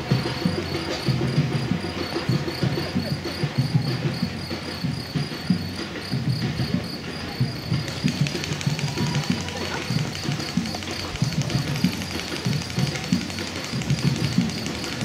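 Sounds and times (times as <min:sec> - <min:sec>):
runners' footsteps on pavement: 0:00.0 - 0:15.0
steady high chirping: 0:07.0 - 0:15.0.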